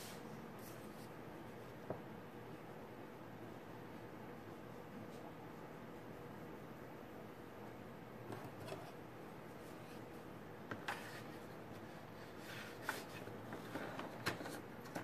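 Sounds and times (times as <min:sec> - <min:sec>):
pencil scraping on paper: 0:10.9 - 0:14.0.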